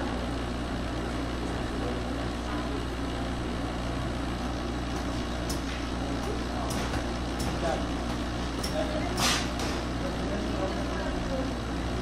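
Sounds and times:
folding machine humming: 0.0s - 12.0s.

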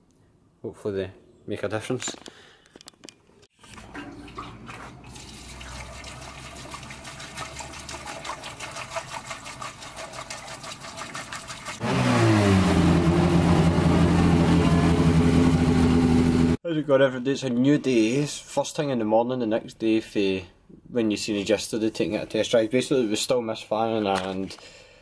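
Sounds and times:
fuel gurgling through a funnel: 3.8s - 11.8s
car engine starting and idling: 11.8s - 16.6s.

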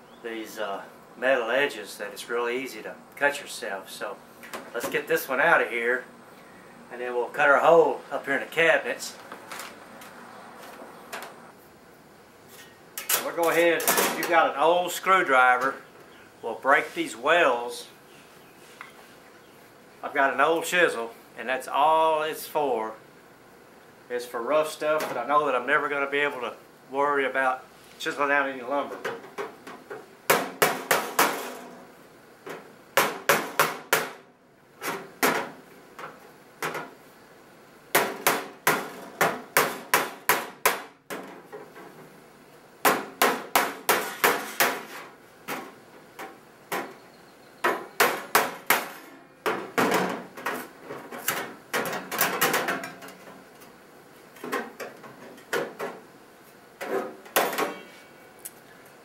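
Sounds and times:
hammer striking chisel on sheet metal: 33.0s - 34.2s, 37.9s - 40.9s, 42.8s - 45.0s.

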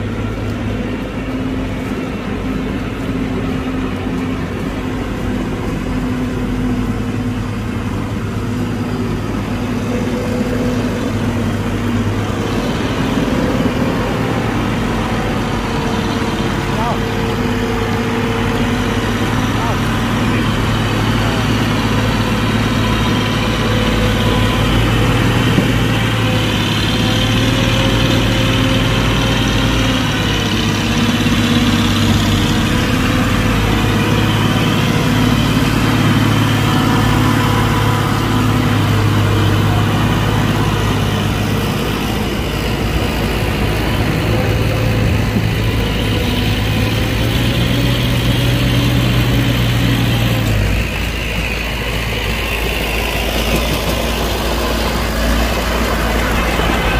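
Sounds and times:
diesel engine running: 0.0s - 56.9s.

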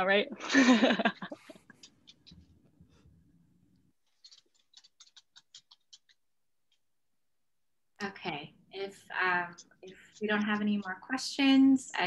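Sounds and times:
faint clicks: 1.2s - 2.6s, 4.0s - 6.9s.

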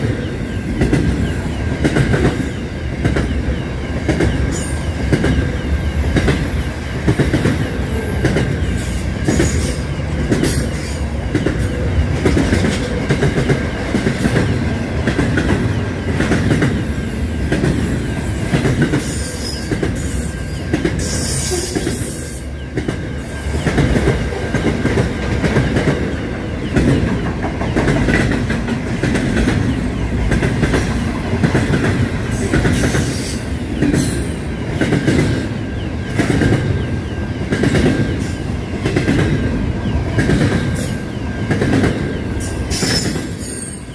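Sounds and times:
freight train wagons rumbling: 0.0s - 43.9s.

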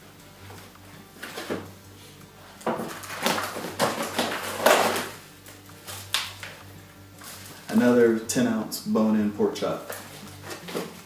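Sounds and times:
plastic packaging rustling: 2.6s - 6.6s, 7.2s - 8.0s, 9.7s - 11.0s.

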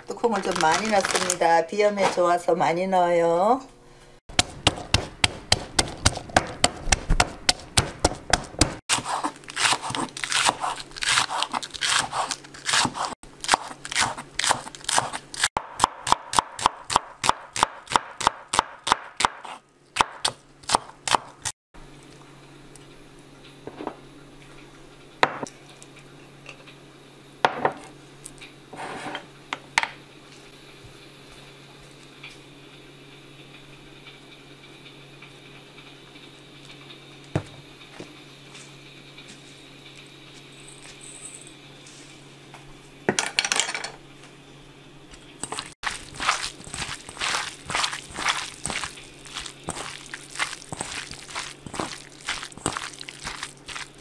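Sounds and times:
pestle pounding in ceramic mortar: 4.3s - 11.4s, 45.4s - 54.0s
knife chopping on wooden board: 4.3s - 21.4s.

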